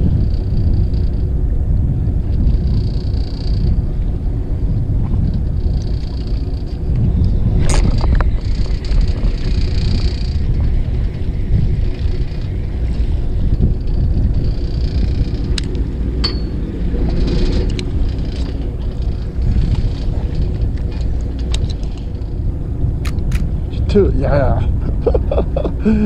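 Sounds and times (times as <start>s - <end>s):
boat engine idling: 0.0s - 26.0s
sharp click: 23.0s - 23.5s.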